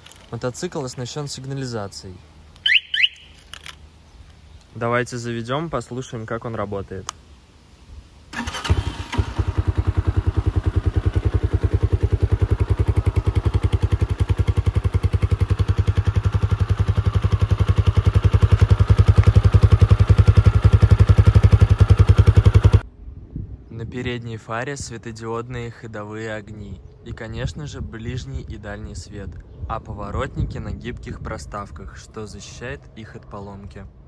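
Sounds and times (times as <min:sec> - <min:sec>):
motorcycle electric starter: 0:08.3 - 0:09.7
motorcycle engine idling: 0:08.4 - 0:22.8.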